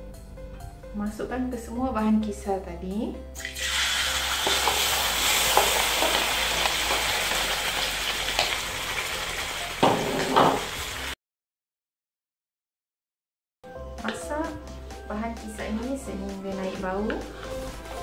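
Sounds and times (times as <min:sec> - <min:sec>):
paste sizzling in hot oil: 0:03.4 - 0:11.2
wooden spatula scraping bowl: 0:15.4 - 0:18.0.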